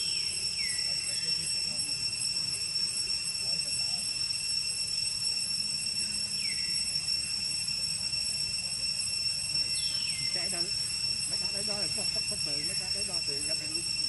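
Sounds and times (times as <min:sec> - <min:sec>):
high-pitched insect drone: 0:00.0 - 0:14.0.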